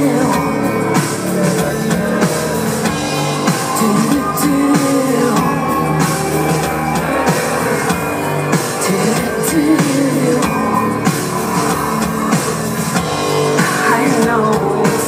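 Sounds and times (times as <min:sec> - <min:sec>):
woman singing lead vocal: 0:00.0 - 0:06.3, 0:08.6 - 0:11.2, 0:13.4 - 0:15.0
distorted electric guitar: 0:00.0 - 0:15.0
drum kit: 0:00.0 - 0:15.0.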